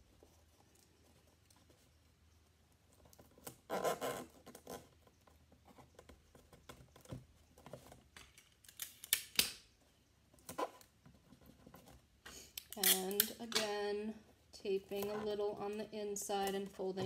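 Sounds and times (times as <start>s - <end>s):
paper and tape crinkling: 10.4s - 13.8s.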